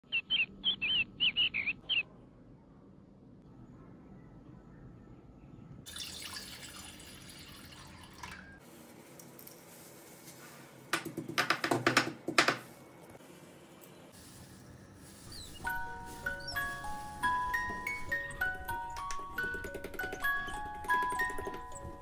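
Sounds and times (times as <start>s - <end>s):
cardamom rustling in mortar: 8.6s - 11.0s, 12.5s - 18.9s
pestle knocking against stone: 10.9s - 12.7s, 19.0s - 21.7s.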